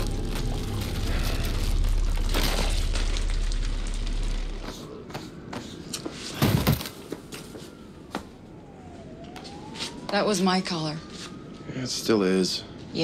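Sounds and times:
deep rumbling drone: 0:00.0 - 0:04.9.

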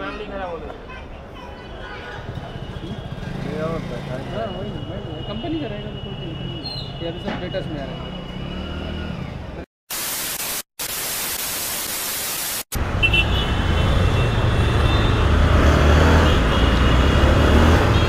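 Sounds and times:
road noise: 0:00.0 - 0:10.7, 0:11.4 - 0:18.0
static-like hiss: 0:09.9 - 0:12.7.

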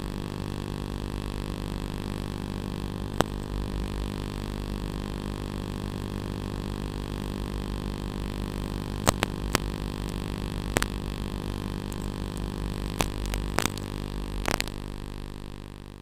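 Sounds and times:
electric motor and rotors buzzing: 0:00.0 - 0:16.0
sharp clicks: 0:09.0 - 0:11.0.

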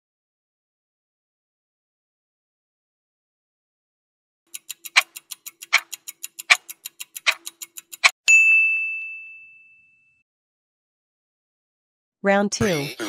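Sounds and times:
rapid timer ticking: 0:04.5 - 0:08.2
bell-like ding: 0:08.3 - 0:10.2.

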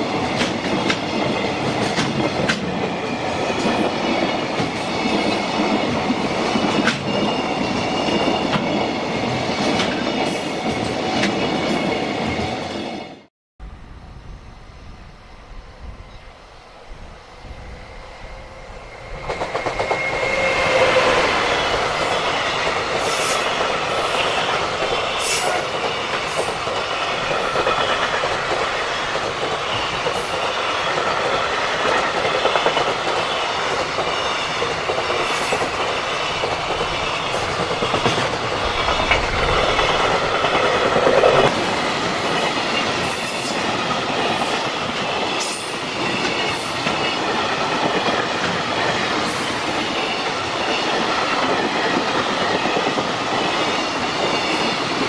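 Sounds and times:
train wheels rumbling on rail: 0:00.0 - 0:55.0
high-pitched wheel squeals: 0:17.2 - 0:22.4.

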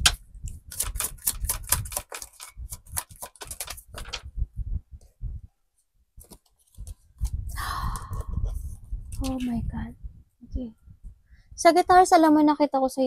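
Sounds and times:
cards being shuffled: 0:00.0 - 0:04.3, 0:06.2 - 0:07.3.

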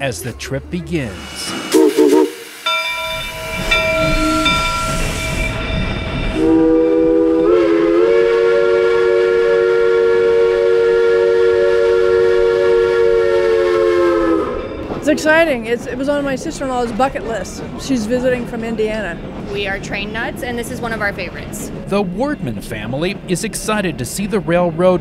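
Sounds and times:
steam hissing: 0:01.0 - 0:14.4
steam whistle blowing: 0:01.6 - 0:05.7, 0:06.4 - 0:14.8.

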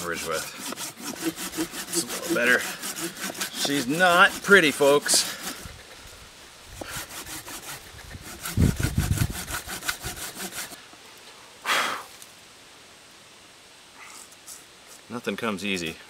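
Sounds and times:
hand saw rasping through wood: 0:00.0 - 0:06.0, 0:06.8 - 0:10.8
short hiss: 0:11.6 - 0:12.3.

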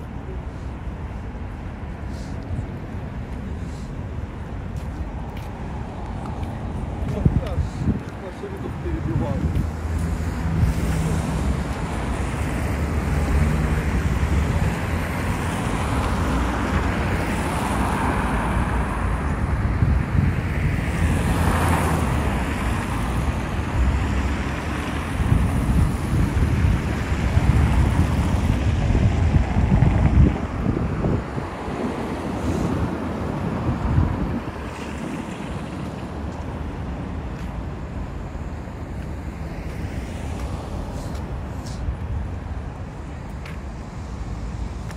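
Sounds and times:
road traffic: 0:00.0 - 0:44.9
wind buffeting microphone: 0:00.8 - 0:13.0, 0:13.8 - 0:44.9
loud vehicle passing: 0:09.5 - 0:41.8.

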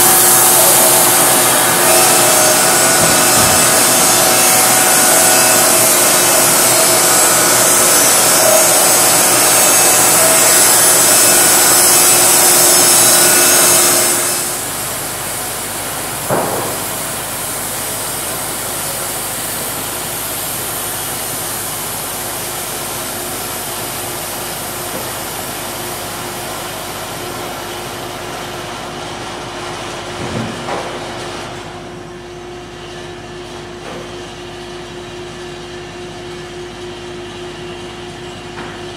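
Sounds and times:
machinery hum: 0:00.0 - 0:38.9
sharp knocks: 0:16.3 - 0:17.0.

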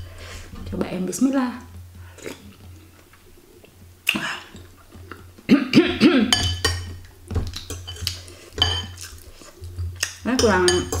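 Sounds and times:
cutlery clinking on glass bowl: 0:06.3 - 0:09.2, 0:10.0 - 0:11.0.

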